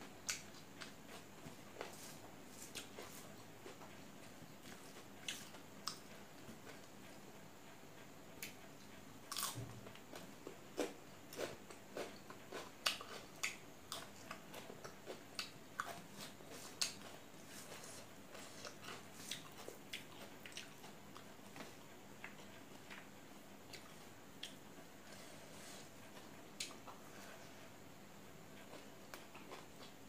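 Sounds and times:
chewing and biting food: 0:09.3 - 0:23.1, 0:28.6 - 0:30.0.

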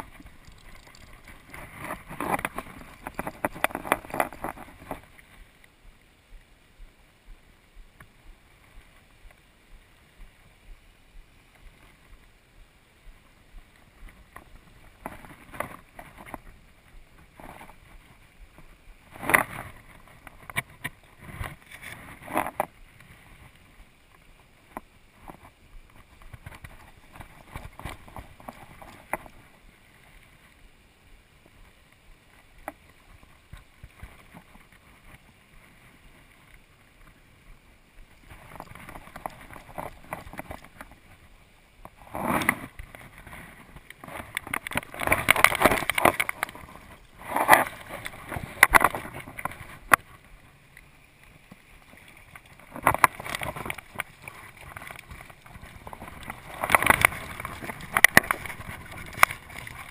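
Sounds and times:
faint ticks: 0:00.0 - 0:30.7.

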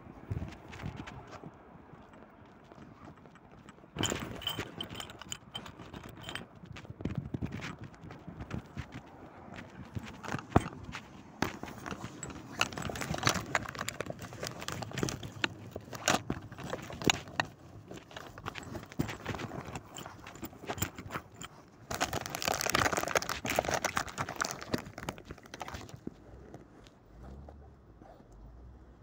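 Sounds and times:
rustling noise: 0:00.0 - 0:27.5
high heels clicking on pavement: 0:07.6 - 0:12.4.

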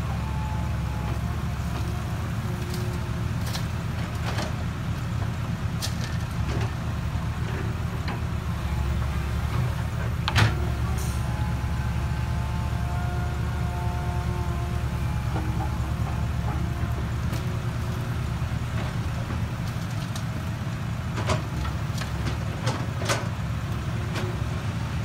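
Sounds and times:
excavator diesel engine running: 0:00.0 - 0:25.0
dirt and rock rattling: 0:01.8 - 0:08.4.

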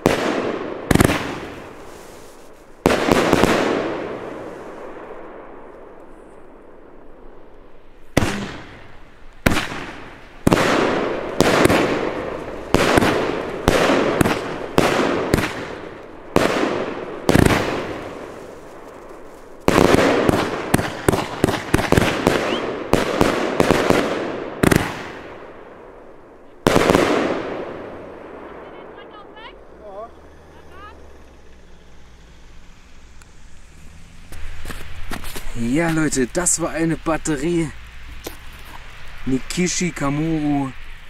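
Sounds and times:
firework shots banging: 0:00.0 - 0:29.9
fading crackle of firework bursts: 0:00.0 - 0:41.0.

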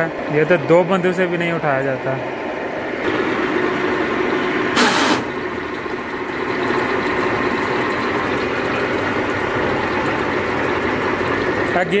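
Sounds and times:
tractor engine running: 0:00.0 - 0:12.0
loud hiss: 0:04.8 - 0:05.3.

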